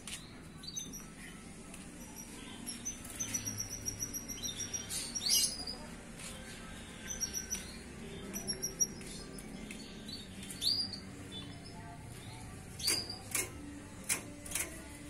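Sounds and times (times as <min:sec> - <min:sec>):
canary twittering: 0:02.0 - 0:05.9, 0:06.9 - 0:09.4.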